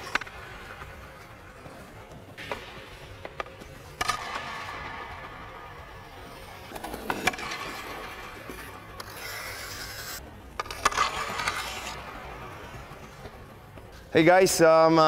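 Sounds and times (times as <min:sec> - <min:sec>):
skate blades scraping ice: 0:00.0 - 0:15.0
stick hitting puck: 0:02.4 - 0:05.4, 0:06.7 - 0:12.5.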